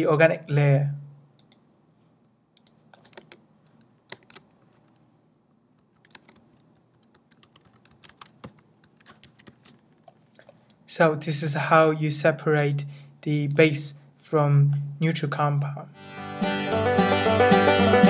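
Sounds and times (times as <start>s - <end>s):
faint keyboard typing: 1.4s - 1.7s, 2.6s - 5.1s, 5.7s - 10.8s.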